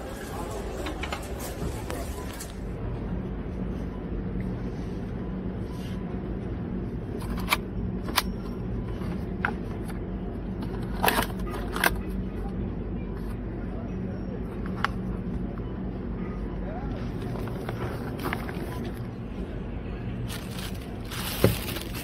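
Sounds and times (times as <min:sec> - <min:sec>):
supermarket background hum: 0:00.0 - 0:22.0.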